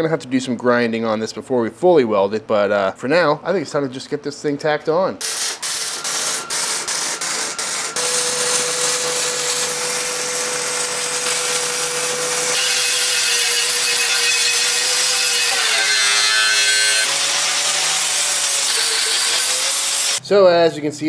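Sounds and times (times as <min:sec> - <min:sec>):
angle grinder grinding steel: 0:05.2 - 0:20.2
welding crackle: 0:05.2 - 0:20.2.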